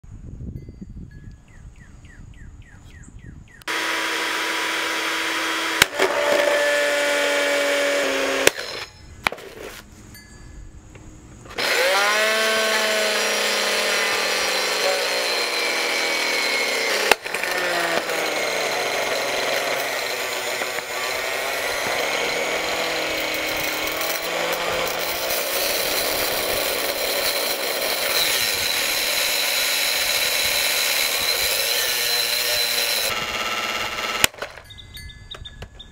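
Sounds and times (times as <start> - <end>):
blender motor whining: 3.7 - 8.9, 11.5 - 34.4.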